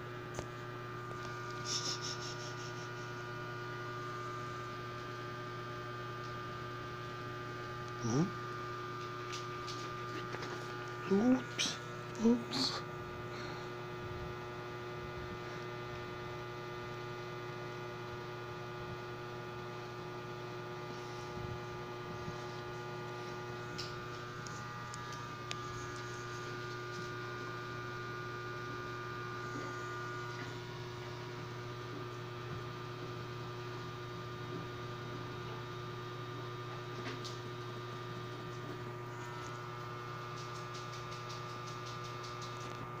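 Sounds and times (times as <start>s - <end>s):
electrical mains hum: 0.0s - 43.0s.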